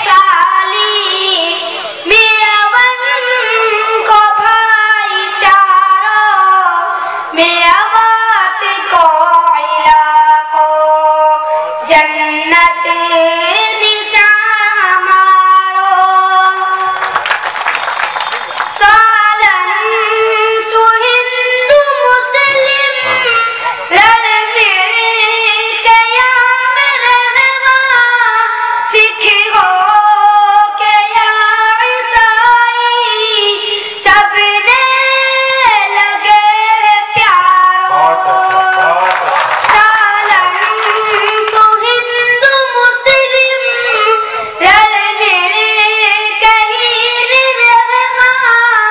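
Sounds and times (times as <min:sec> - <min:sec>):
boy chanting a poem: 0:18.8 - 0:48.9.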